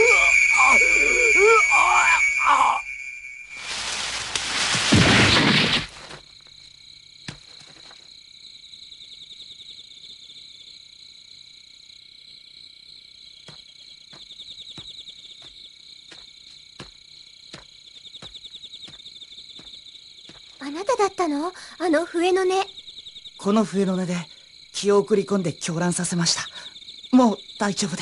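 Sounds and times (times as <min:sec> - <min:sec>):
crickets trilling: 0:00.0 - 0:28.0
soft footsteps: 0:03.5 - 0:04.9.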